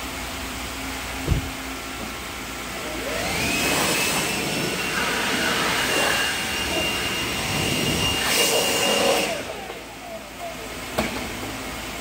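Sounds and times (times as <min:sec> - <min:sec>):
electric air blower whining: 0:00.0 - 0:12.0
rushing air: 0:03.1 - 0:09.5.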